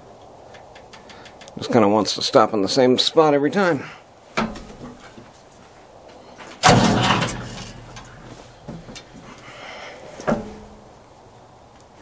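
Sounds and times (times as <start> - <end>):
starter clunk: 4.4 - 5.0, 6.5 - 9.1, 10.2 - 10.8
diesel engine turning over: 6.6 - 8.2.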